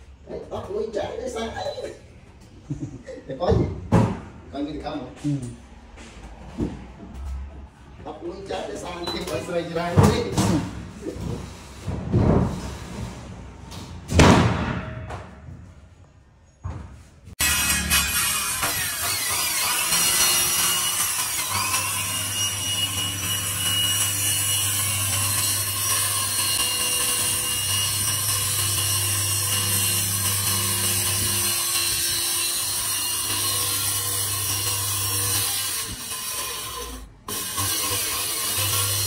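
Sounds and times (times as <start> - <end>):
circular saw cutting plywood: 17.4 - 39.0.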